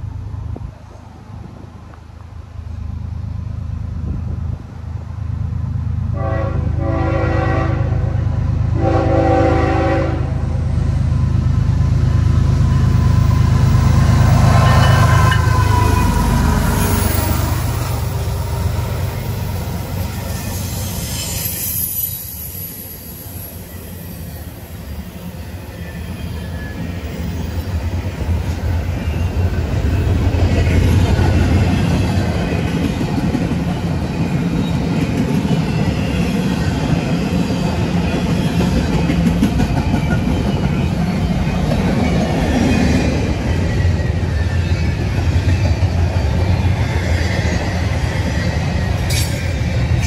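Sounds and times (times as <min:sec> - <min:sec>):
freight train wheels rumbling on rails: 0:00.0 - 0:50.0.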